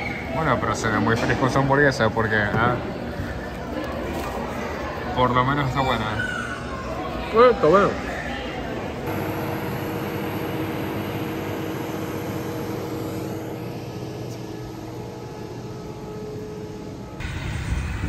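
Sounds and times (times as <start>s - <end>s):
faint high whine: 9.1s - 18.0s
jet aircraft droning: 9.1s - 18.0s.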